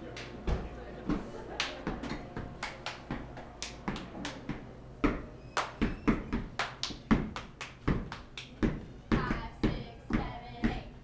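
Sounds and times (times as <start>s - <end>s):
hand claps: 1.6s - 4.5s, 5.6s - 5.8s, 6.6s - 8.6s.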